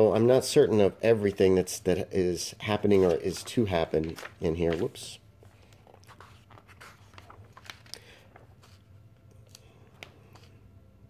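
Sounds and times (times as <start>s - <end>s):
book pages turning: 2.8s - 10.6s.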